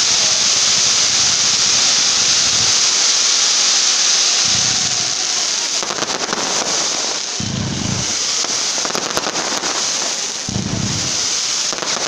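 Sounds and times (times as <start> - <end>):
fireworks crackling and hissing: 0.0 - 12.0
low rumbles: 7.4 - 8.4, 10.5 - 11.3.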